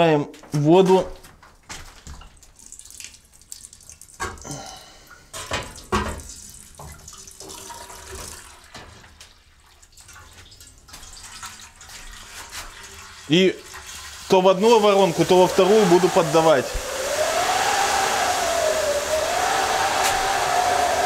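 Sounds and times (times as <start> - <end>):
water running into metal bucket: 2.2 - 4.7, 5.4 - 17.2.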